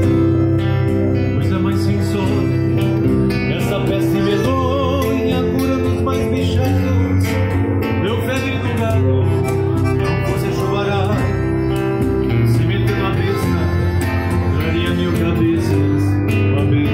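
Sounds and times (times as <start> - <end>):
classical guitar: 0.0 - 16.9
man singing: 1.1 - 16.9
piano accordion: 8.8 - 16.2.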